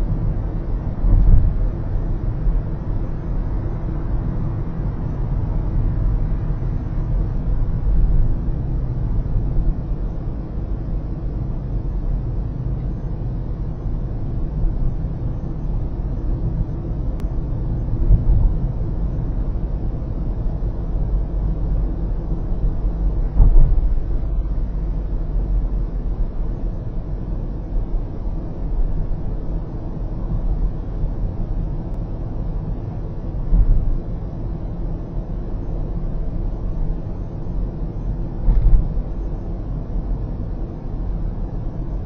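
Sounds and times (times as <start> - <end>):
road and tyre rumble in car: 0.0 - 42.0
car bumps: 23.3 - 24.0.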